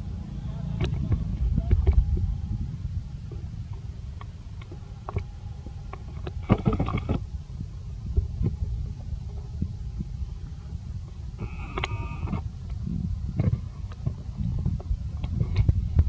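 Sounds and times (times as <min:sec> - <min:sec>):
low steady rumble: 0:00.0 - 0:16.0
small clicks: 0:11.4 - 0:12.8.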